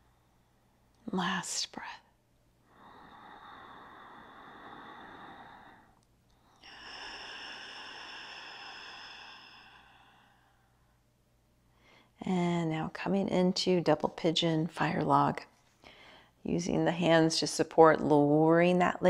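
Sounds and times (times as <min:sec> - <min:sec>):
woman breathing deeply: 0:02.6 - 0:12.2, 0:15.8 - 0:16.4.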